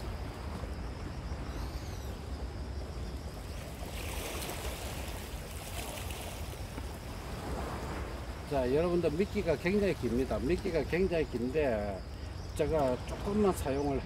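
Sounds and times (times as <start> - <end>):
wind rumble on microphone: 0.0 - 14.0
sea washing on rocky shore: 3.6 - 11.0.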